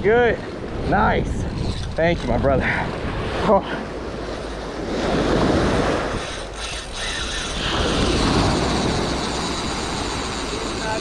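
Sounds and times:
wind buffeting microphone: 0.0s - 3.4s, 4.0s - 11.0s
surf washing in: 2.4s - 11.0s.

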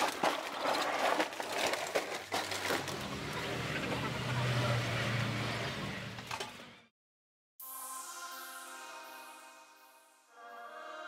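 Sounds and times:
plastic sack rustling and crackling: 0.0s - 3.3s.

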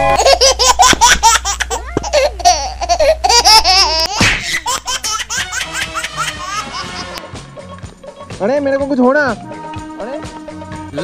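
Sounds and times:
rapid high-pitched laughter: 0.1s - 7.2s.

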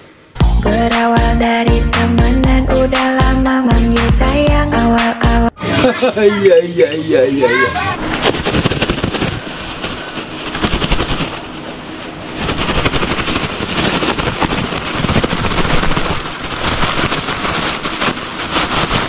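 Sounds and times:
plastic bag crinkling: 8.1s - 19.0s.

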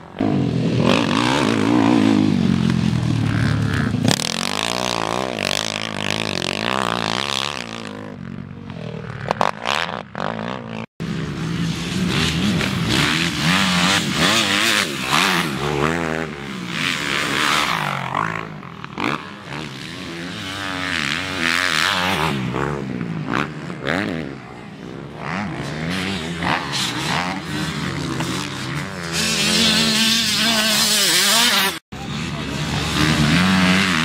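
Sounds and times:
motocross engines revving: 0.0s - 34.0s.

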